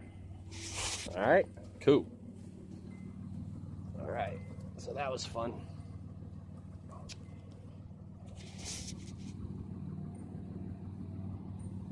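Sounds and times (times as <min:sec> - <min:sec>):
engine idling: 0:00.0 - 0:11.9
brief hiss: 0:00.5 - 0:01.2, 0:08.3 - 0:09.4.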